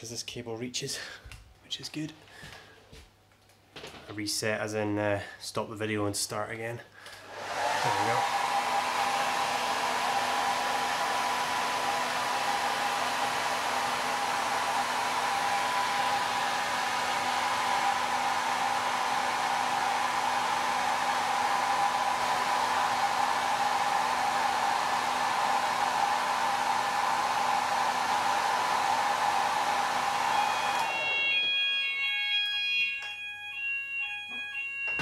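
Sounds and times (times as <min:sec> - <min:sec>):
hair dryer running: 0:07.2 - 0:35.0.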